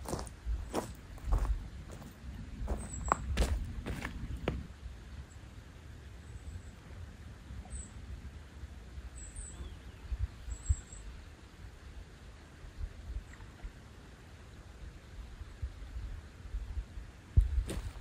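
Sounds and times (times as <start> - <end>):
wind rumbling on microphone: 0.0 - 4.7, 14.9 - 18.0.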